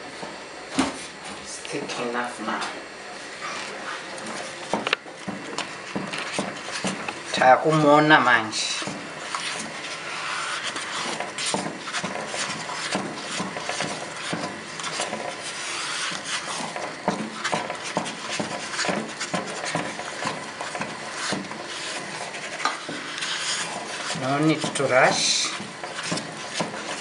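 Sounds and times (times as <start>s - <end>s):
wooden spoon scraping a pot: 3.2s - 27.0s.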